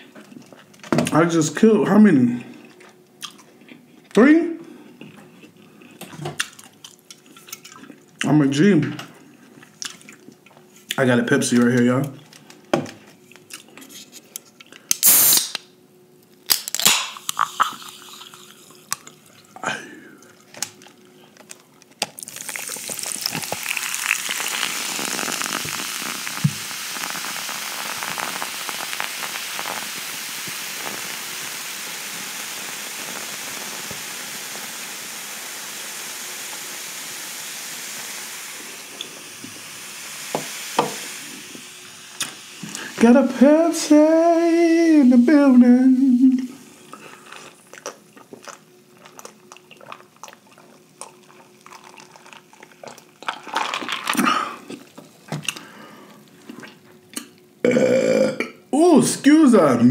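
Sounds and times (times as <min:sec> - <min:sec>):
soda fizzing hiss: 0:15.0 - 0:15.6, 0:17.0 - 0:19.0, 0:22.2 - 0:47.7
soda poured into a glass: 0:22.2 - 0:44.0, 0:50.8 - 0:54.2.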